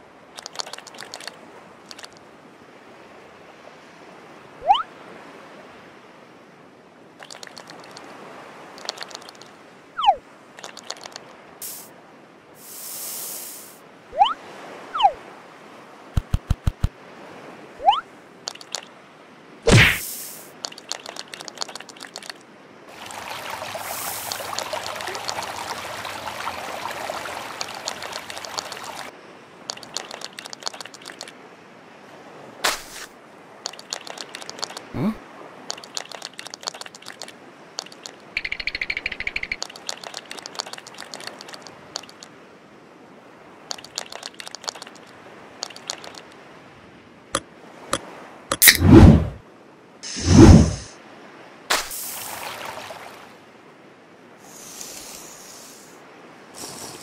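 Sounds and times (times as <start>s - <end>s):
crab scuttling clicks and taps: 0.4s - 2.2s, 7.2s - 8.0s, 8.8s - 9.5s, 10.6s - 11.2s, 18.5s - 18.9s, 20.6s - 22.4s, 29.7s - 31.3s, 33.6s - 34.9s, 35.7s - 42.3s, 43.7s - 46.4s.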